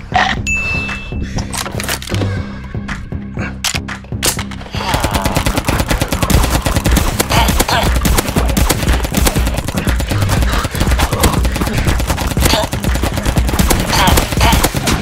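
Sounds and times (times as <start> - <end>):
toy blaster rapid firing: 5.1 - 15.0.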